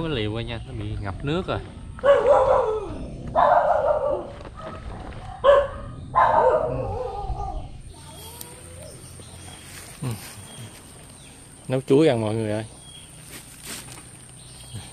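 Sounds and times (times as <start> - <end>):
dog barking: 2.0 - 7.4.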